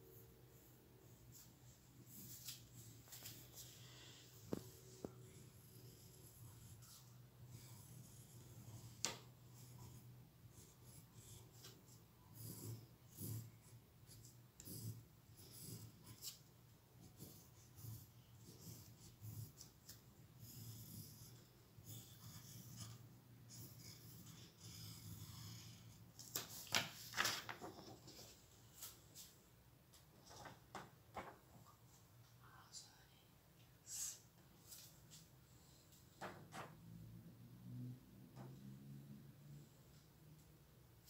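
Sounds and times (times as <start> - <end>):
pencil scratching on paper: 5.0 - 26.0
paper rustling: 26.2 - 29.0.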